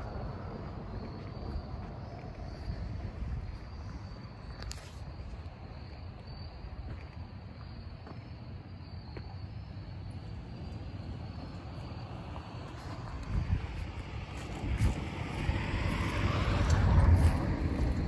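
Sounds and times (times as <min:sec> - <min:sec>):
wind rumbling on microphone: 0:00.0 - 0:07.0, 0:12.8 - 0:18.0
high insect trill: 0:00.0 - 0:18.0.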